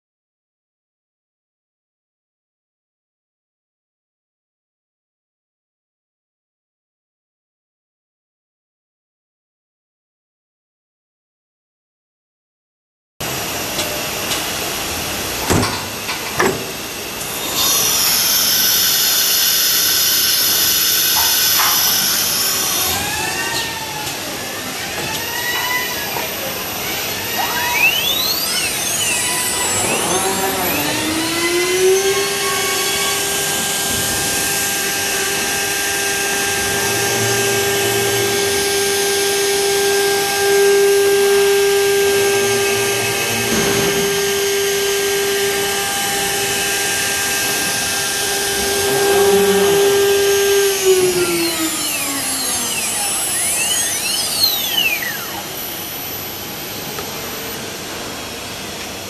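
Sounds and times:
cnc router spindle whine: 0:13.2 - 0:59.0
bit routing wood: 0:13.6 - 0:59.0.

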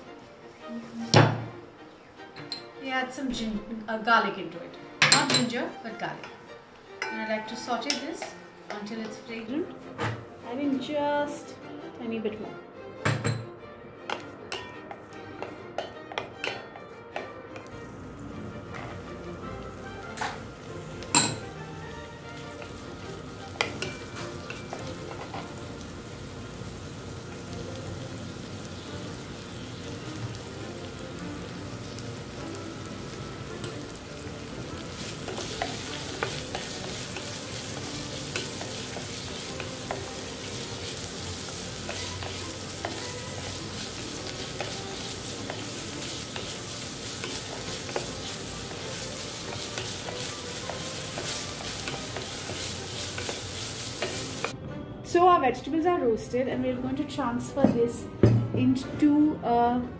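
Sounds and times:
onion and garlic sizzling in oil: 0:14.1 - 0:54.6
wooden spatula scraping a pot: 0:34.7 - 0:54.5.

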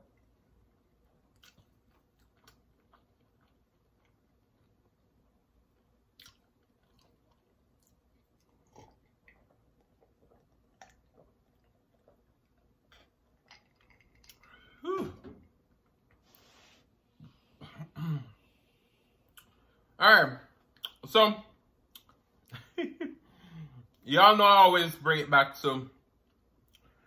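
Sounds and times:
swallowing gulps: 0:06.2 - 0:15.3.

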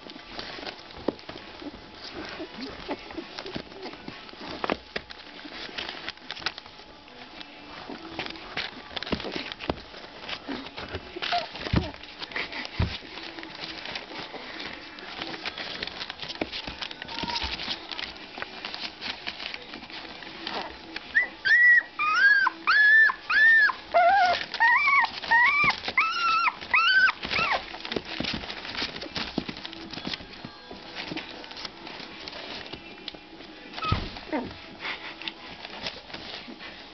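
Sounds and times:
puppies scratching in a box: 0:00.0 - 0:36.9
puppy whimpering: 0:01.5 - 0:04.6, 0:10.2 - 0:15.8, 0:20.4 - 0:29.1, 0:33.7 - 0:36.5.

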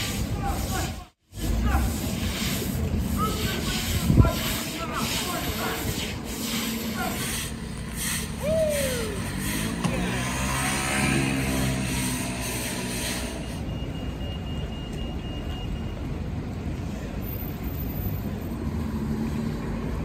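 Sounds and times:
street traffic rumble: 0:00.0 - 0:20.0
motorcycle passing: 0:07.1 - 0:13.4.

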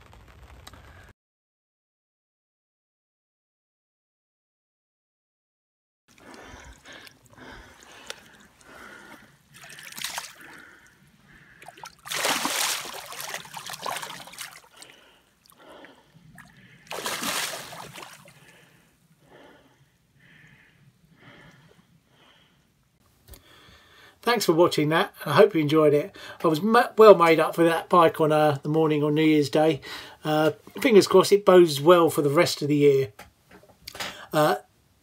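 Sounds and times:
fish splashing in shallow water: 0:06.1 - 0:18.7.

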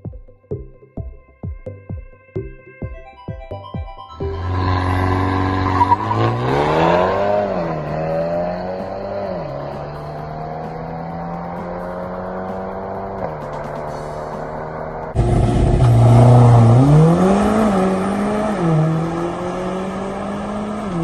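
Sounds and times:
car engine accelerating hard: 0:04.2 - 0:21.0.

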